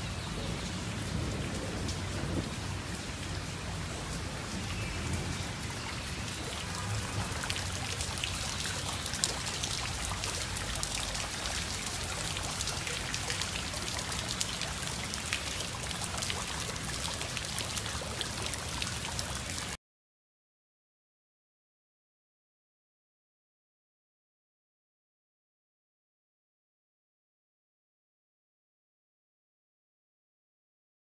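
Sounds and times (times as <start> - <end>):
rain falling: 0.0 - 19.8
raindrops ticking on surfaces: 0.0 - 19.8.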